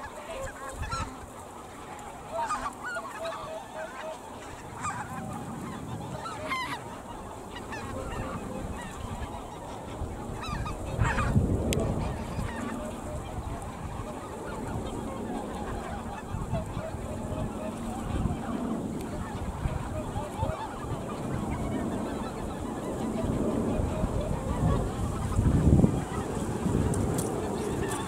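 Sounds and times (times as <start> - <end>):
geese honking: 0.0 - 28.0.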